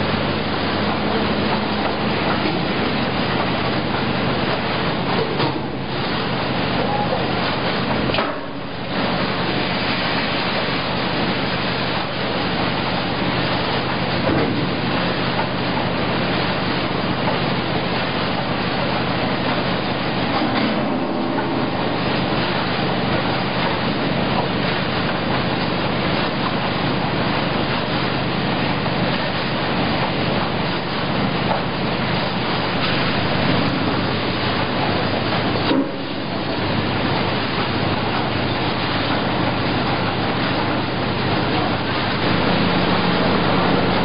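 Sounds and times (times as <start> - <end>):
production line machine noise: 0.0 - 44.0.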